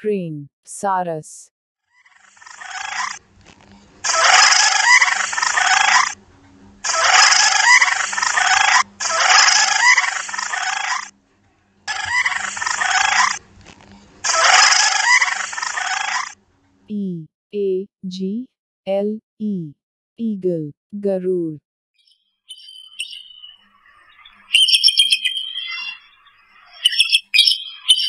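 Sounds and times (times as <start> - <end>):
wading bird harsh calls: 2.0 - 3.2, 4.0 - 6.2, 6.8 - 11.1, 11.9 - 13.4, 14.2 - 16.4, 22.6 - 28.0.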